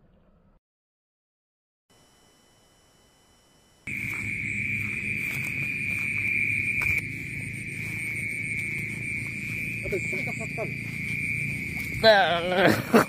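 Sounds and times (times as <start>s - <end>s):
night insects trilling: 1.9s - 13.0s.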